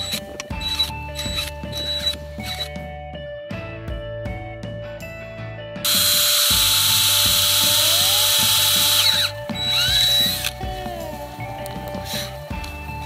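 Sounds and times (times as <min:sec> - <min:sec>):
cordless drill boring a hole: 0:05.9 - 0:10.6.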